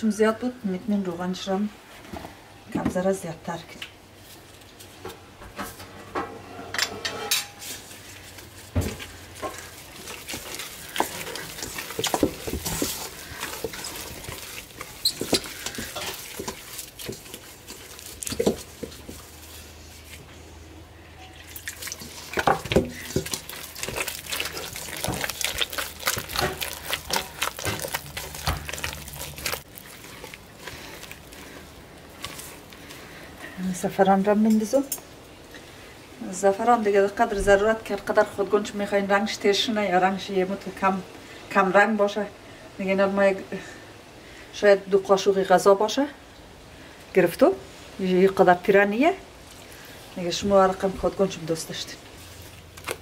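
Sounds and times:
spoon stirring batter: 8.0s - 20.3s, 21.4s - 34.1s
wet squelches and smacks: 8.4s - 19.4s, 21.5s - 33.1s.

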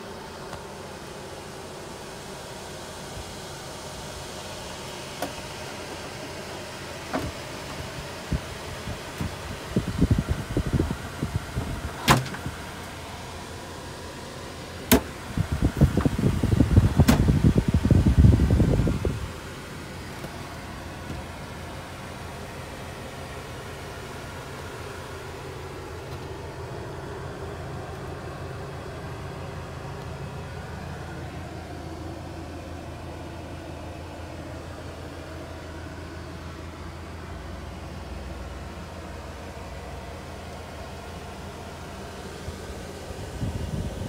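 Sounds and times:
diesel engine idling: 0.0s - 44.0s
steady hum: 0.0s - 44.0s
knocks and bumps in cab: 7.1s - 7.4s, 12.0s - 12.5s, 15.8s - 17.8s.

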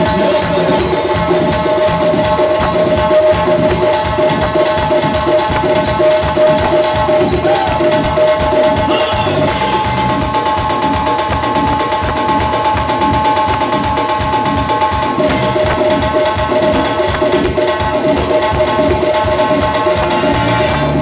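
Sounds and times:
fast hand-drum rhythm: 0.0s - 21.0s
held synth tone: 8.7s - 10.3s.

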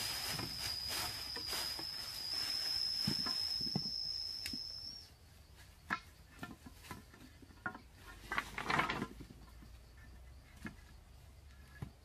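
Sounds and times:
bamboo poles knocking: 5.8s - 9.7s
clattering and scraping: 5.8s - 11.0s.

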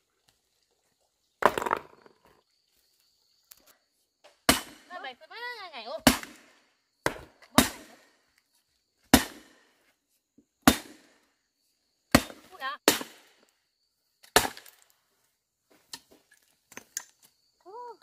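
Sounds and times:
metal hoe chopping stony earth: 4.4s - 4.9s, 6.0s - 8.1s, 9.1s - 9.7s, 10.6s - 11.2s, 12.1s - 13.4s, 14.2s - 14.9s.

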